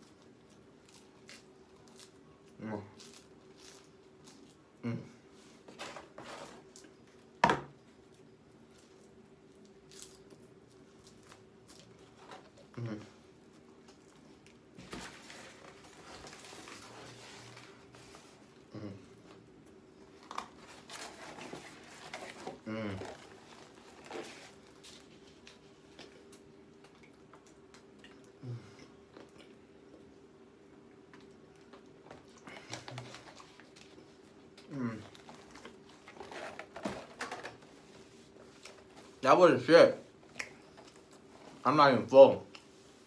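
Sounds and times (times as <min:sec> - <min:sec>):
man chewing: 0:08.8 - 0:30.1
chewing with mouth clicks: 0:25.9 - 0:30.1
lip smacks: 0:40.3 - 0:40.6.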